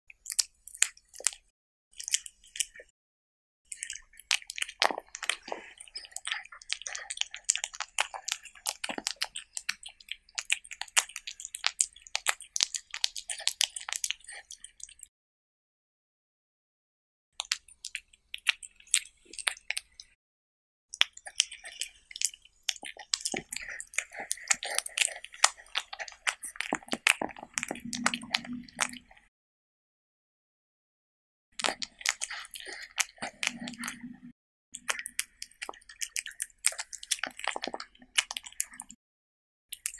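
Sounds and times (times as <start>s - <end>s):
cat chewing raw meat: 3.7s - 15.1s, 21.0s - 29.3s, 31.6s - 39.0s.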